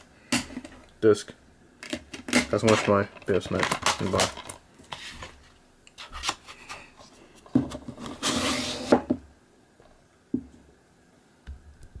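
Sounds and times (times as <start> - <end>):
cardboard sliding over plastic case: 7.7 - 9.2.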